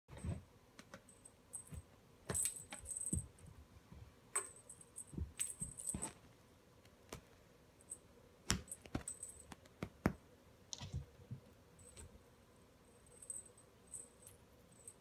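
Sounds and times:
small bell jingling: 0:12.9 - 0:15.0.

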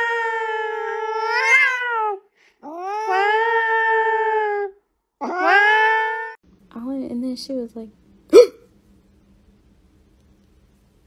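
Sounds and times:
cat meowing: 0:00.0 - 0:06.4.

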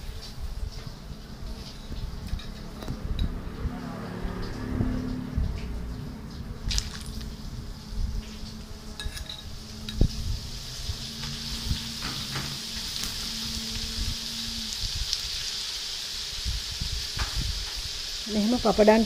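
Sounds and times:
food sizzling in hot oil: 0:00.0 - 0:19.0
metal spoon clinking on pan: 0:09.0 - 0:10.0.

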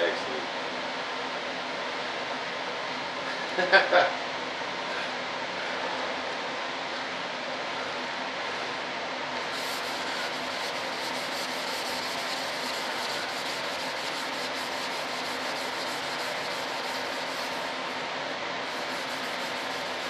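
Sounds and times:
hand rubbing over a board: 0:09.5 - 0:18.0, 0:18.6 - 0:20.0.

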